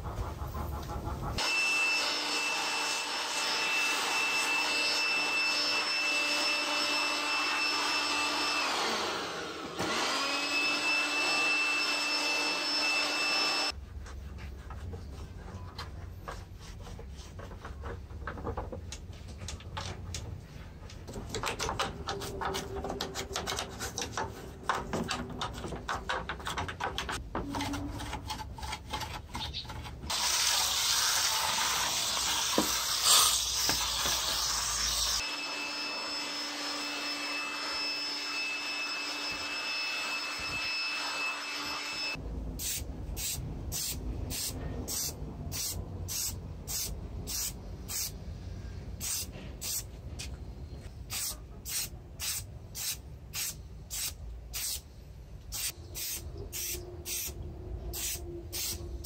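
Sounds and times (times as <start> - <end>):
compressed air rushing from hose: 49.0 - 49.9, 55.5 - 58.9.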